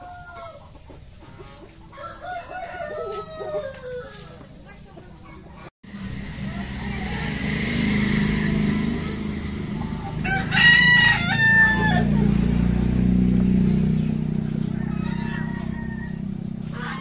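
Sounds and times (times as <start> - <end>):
rooster crowing: 1.9 - 4.4, 6.1 - 12.5, 14.4 - 17.0
steady low hum: 5.9 - 14.7.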